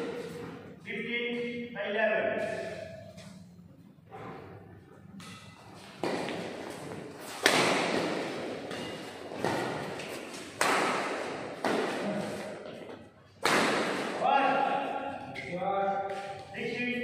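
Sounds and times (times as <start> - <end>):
rackets hitting shuttlecock: 5.1 - 16.4.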